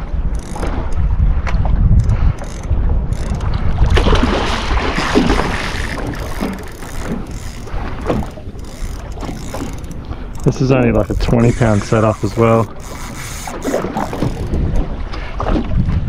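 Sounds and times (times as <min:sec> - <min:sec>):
wind buffeting microphone: 0:00.0 - 0:16.0
water rushing: 0:03.7 - 0:14.9.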